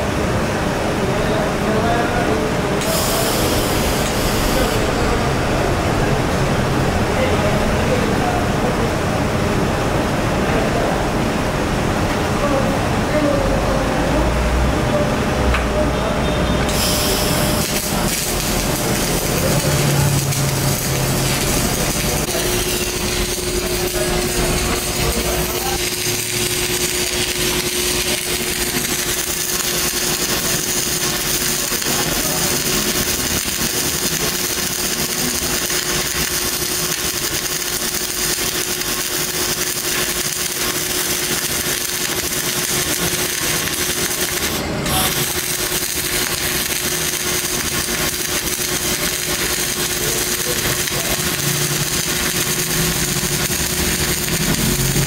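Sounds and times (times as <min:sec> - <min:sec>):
machine hum: 0:00.0 - 0:55.0
arc welding crackling hiss: 0:02.8 - 0:05.0, 0:16.7 - 0:55.0.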